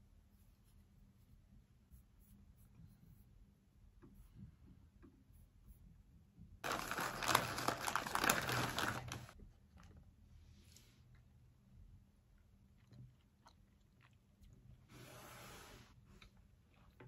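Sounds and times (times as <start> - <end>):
plastic snack bag crinkling: 6.6 - 9.4.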